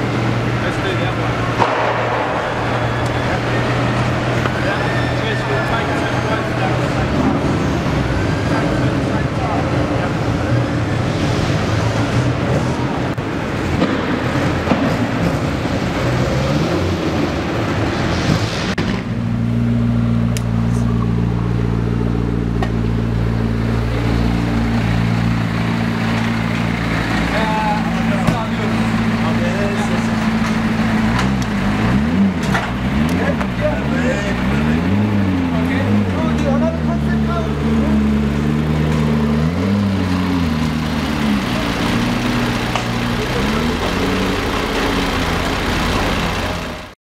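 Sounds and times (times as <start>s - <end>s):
car engine idling: 18.7s - 47.0s.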